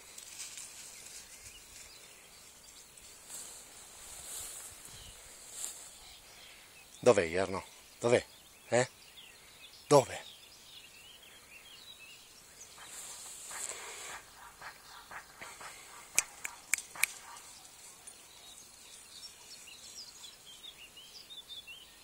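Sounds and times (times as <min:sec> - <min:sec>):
rustling through tall grass: 0:00.0 - 0:06.7, 0:12.5 - 0:20.9
small birds chirping: 0:00.6 - 0:22.0
sharp clicks: 0:15.4 - 0:17.4.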